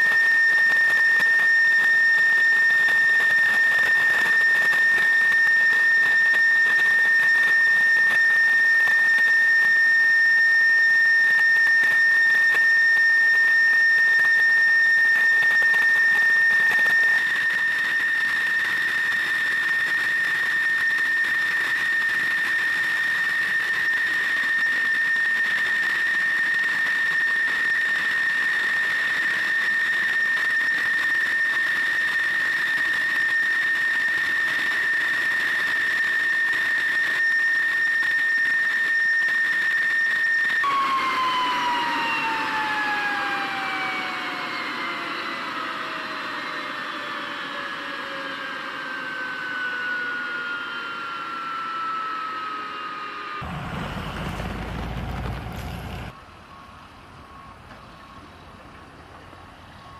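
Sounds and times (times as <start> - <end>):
jet engine whining: 0.0 - 58.5.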